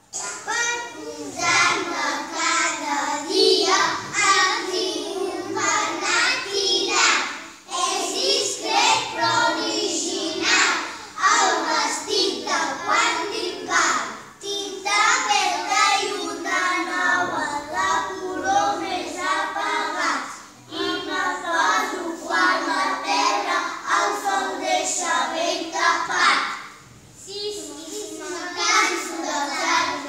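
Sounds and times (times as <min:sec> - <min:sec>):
children singing together: 0:00.0 - 0:30.0.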